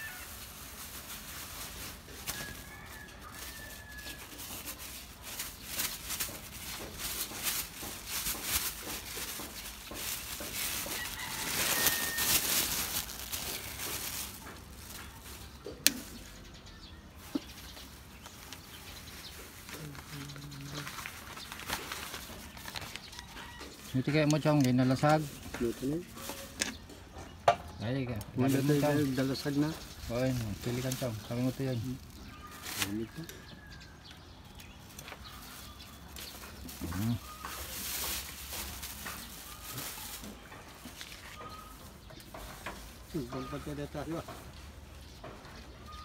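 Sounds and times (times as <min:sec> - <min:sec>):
rustling crackling noise: 0:00.0 - 0:27.0, 0:28.0 - 0:46.0
rooster crowing: 0:02.3 - 0:04.4, 0:10.9 - 0:12.5.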